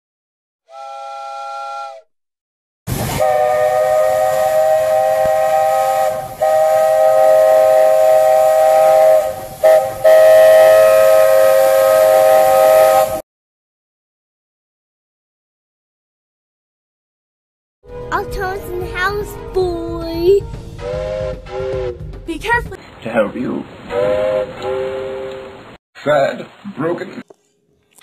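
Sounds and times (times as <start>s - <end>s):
steam chime whistle: 0.7s - 2.0s, 3.0s - 13.2s, 20.7s - 22.2s, 23.9s - 25.6s
steam hissing: 2.9s - 13.2s, 22.9s - 25.4s.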